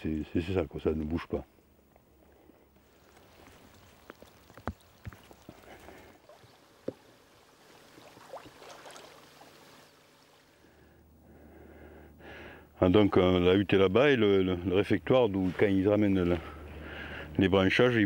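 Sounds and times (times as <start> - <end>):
water lapping and trickling: 2.0 - 10.7.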